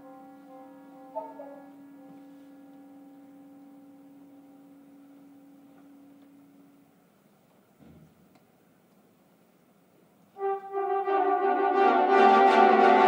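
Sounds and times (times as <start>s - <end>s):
brass band playing softly: 0.0s - 5.2s, 10.4s - 13.0s.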